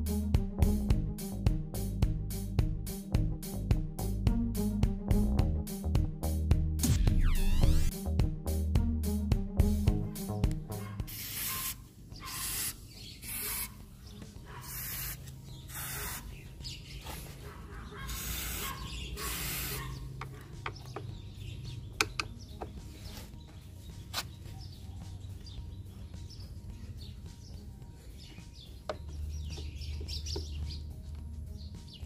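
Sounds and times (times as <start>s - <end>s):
aerosol spray hissing: 11.1s - 13.8s, 14.6s - 16.4s, 18.1s - 19.9s.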